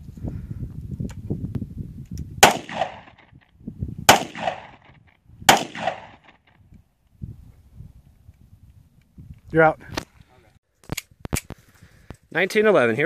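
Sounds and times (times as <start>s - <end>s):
pistol shots with echo: 2.4s - 3.2s, 4.1s - 4.9s, 5.5s - 6.4s.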